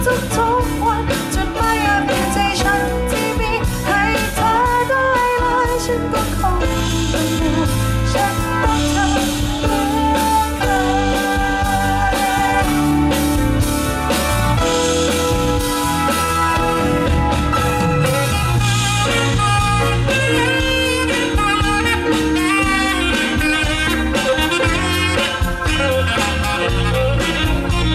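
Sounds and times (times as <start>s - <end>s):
live band playing pop song: 0.0s - 27.9s
steady drum beat: 6.9s - 27.9s.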